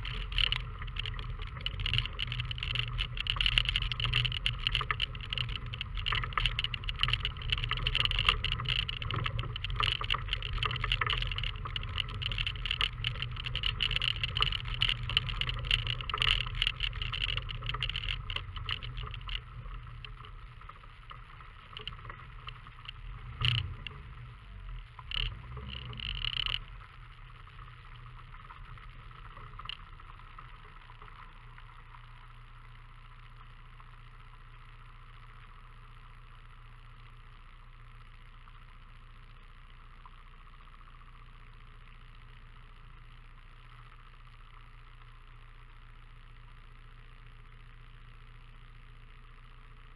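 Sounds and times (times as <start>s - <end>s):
car rattling on rough ground: 0.0s - 32.0s
car engine rumble: 0.0s - 49.9s.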